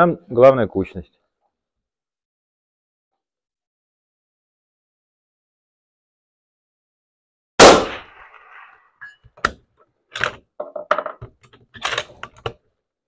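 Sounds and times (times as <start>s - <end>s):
rifle shot: 7.6s - 8.6s
rifle bolt clicking and clacking: 11.2s - 12.6s.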